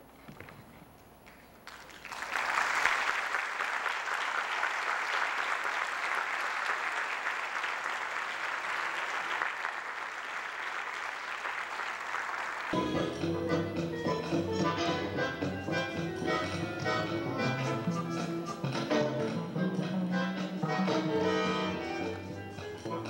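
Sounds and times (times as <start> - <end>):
audience applauding: 1.3 - 12.8.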